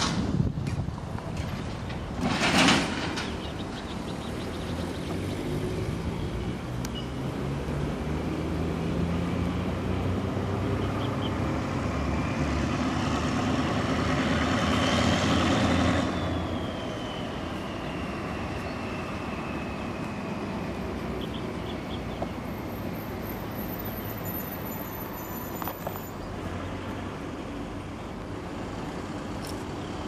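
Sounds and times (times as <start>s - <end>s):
diesel locomotive engine running: 0.0s - 30.0s
high-pitched squeal: 14.7s - 26.3s.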